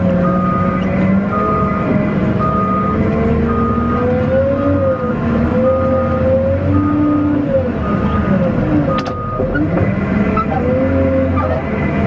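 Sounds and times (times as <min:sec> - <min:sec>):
loader engine and hydraulics whine: 0:00.0 - 0:12.0
reverse alarm beeping: 0:00.2 - 0:04.0, 0:08.9 - 0:09.6.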